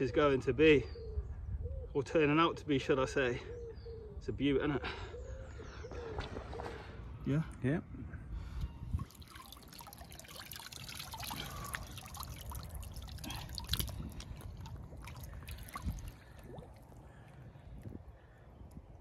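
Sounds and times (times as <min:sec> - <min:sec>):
water dripping and trickling: 0:08.9 - 0:19.0
small splashes: 0:09.0 - 0:18.8.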